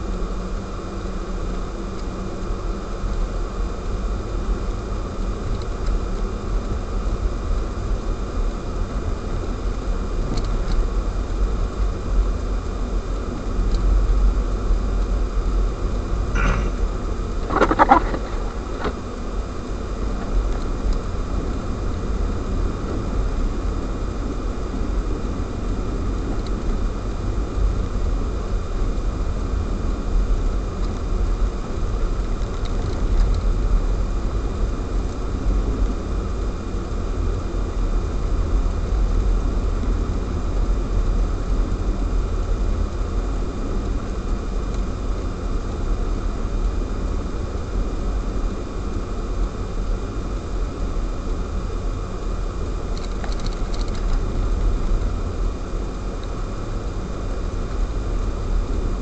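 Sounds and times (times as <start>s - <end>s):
faint high whine: 0.0s - 59.0s
car driving on snowy road: 17.4s - 19.1s.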